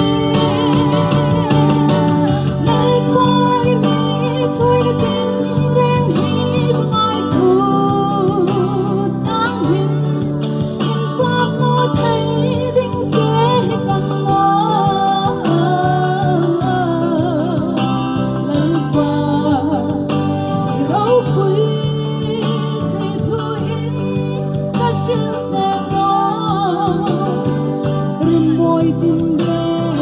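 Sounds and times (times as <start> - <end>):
steady drum beat: 0.0 - 3.9
keyboard chords: 0.0 - 30.0
woman singing into microphone: 0.0 - 30.0.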